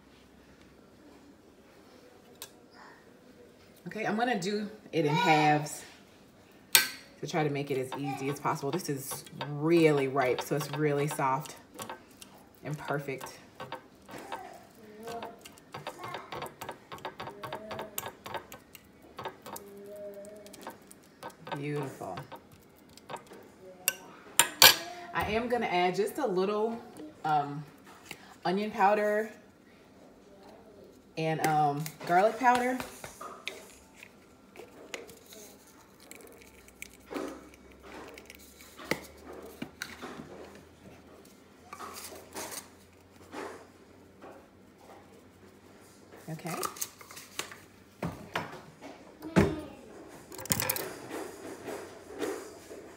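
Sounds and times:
utensils and dishes clinking: 0:07.6 - 0:14.5
fork mashing avocado on plate: 0:07.8 - 0:19.8, 0:20.4 - 0:23.4.

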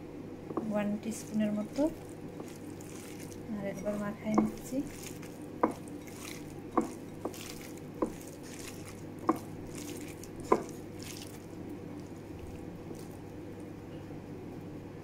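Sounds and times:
steady low hum: 0:00.0 - 0:15.0
wet squishing of hand mixing: 0:00.5 - 0:13.9
sharp taps on glass bowl: 0:03.2 - 0:09.5, 0:10.4 - 0:10.8.

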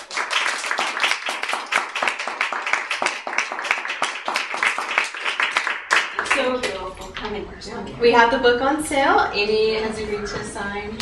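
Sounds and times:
audience applause: 0:00.0 - 0:06.7.

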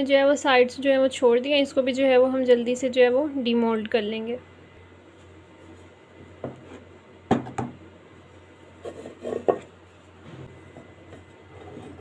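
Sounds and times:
metal rubbing on wood: 0:08.8 - 0:09.7, 0:11.0 - 0:12.0.

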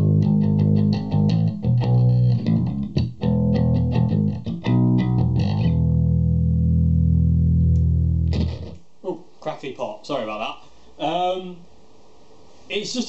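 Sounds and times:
electric bass plucked low notes: 0:00.0 - 0:08.8.

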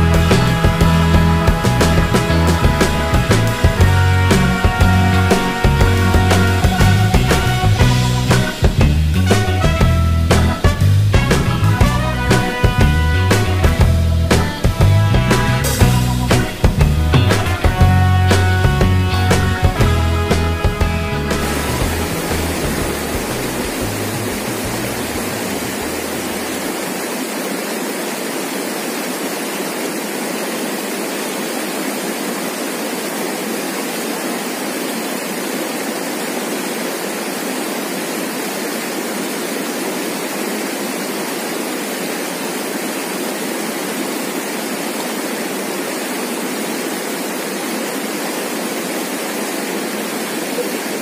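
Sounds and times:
river rapids rushing over rocks: 0:21.5 - 0:51.0.

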